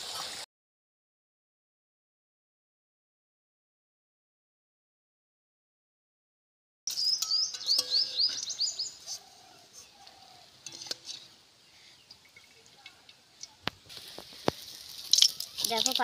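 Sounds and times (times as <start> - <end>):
small bird chirping: 6.9 - 10.4.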